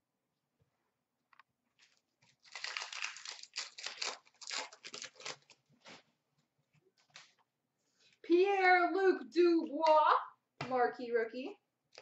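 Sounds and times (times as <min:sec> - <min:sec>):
foil wrapper crinkling and tearing: 0:01.8 - 0:06.0.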